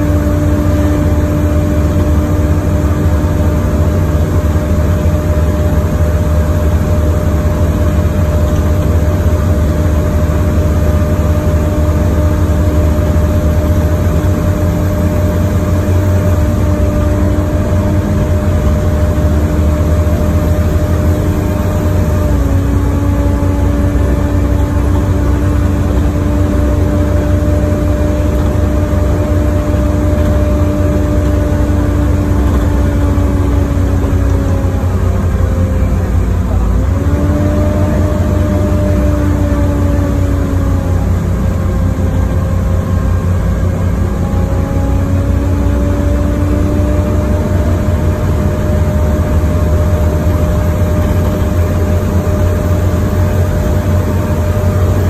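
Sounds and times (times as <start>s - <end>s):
bus engine and road rumble: 0.0s - 55.0s
held whine: 0.0s - 55.0s.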